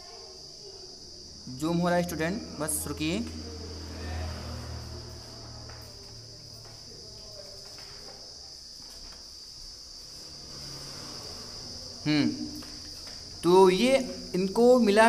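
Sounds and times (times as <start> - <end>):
faint low hum: 0.0 - 14.5
high-pitched whine: 1.4 - 6.3.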